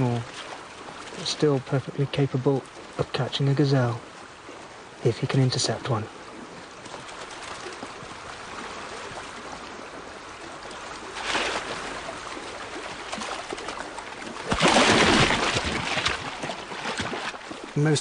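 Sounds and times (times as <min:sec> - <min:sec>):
animals splashing in water: 0:00.0 - 0:01.6, 0:06.4 - 0:18.0
river water running: 0:00.0 - 0:18.0.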